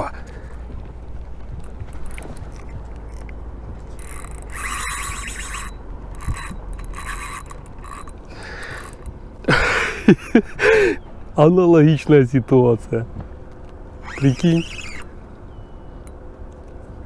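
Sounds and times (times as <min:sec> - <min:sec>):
fishing reel gears whirring: 0:01.9 - 0:03.3, 0:03.9 - 0:09.8, 0:14.0 - 0:15.2.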